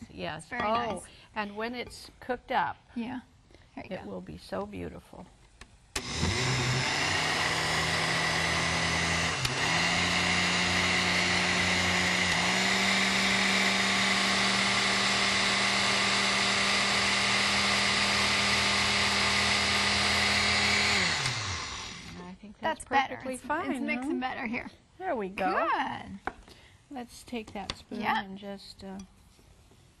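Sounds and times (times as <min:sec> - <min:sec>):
blender running: 0:06.0 - 0:22.2.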